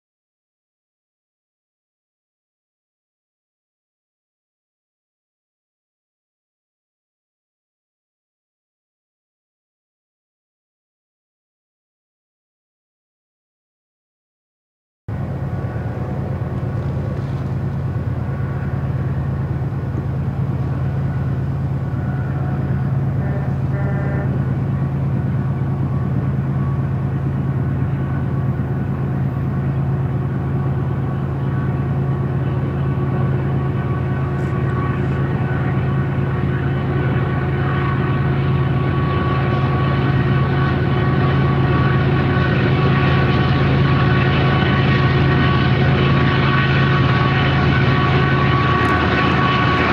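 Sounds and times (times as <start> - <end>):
diesel locomotive engine drone: 15.1 - 49.9.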